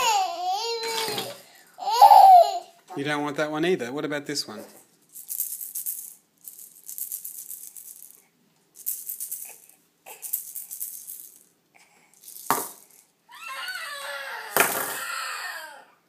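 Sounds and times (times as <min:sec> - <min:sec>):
plastic baby rattle shaken: 0:05.1 - 0:11.5, 0:12.1 - 0:13.1.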